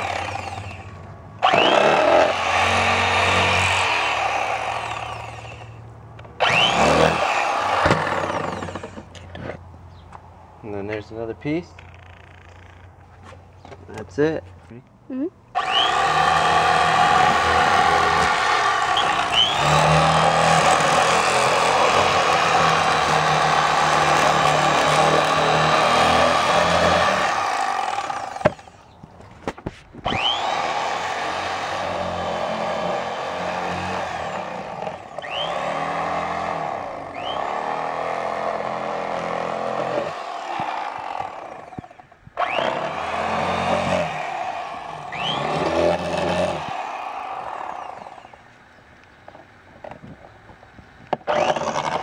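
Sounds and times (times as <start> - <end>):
electric knife motor buzzing: 0.0 - 5.8, 6.4 - 9.1, 15.6 - 28.8, 30.0 - 48.4, 51.2 - 52.0.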